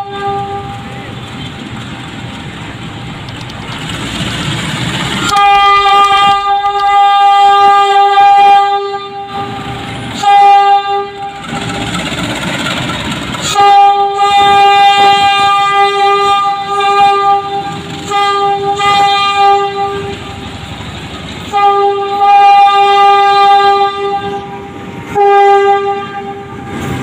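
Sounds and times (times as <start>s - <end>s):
train horn blasts: 0.0s - 1.2s, 5.2s - 11.9s, 13.4s - 20.5s, 21.4s - 26.9s
locomotive engine rumble: 0.0s - 27.0s.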